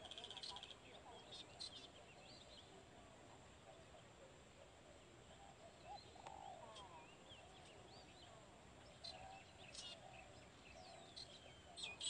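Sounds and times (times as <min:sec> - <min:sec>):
bird chirps and twitters: 0:00.0 - 0:02.7, 0:05.4 - 0:12.0
steady background hiss: 0:00.0 - 0:12.0.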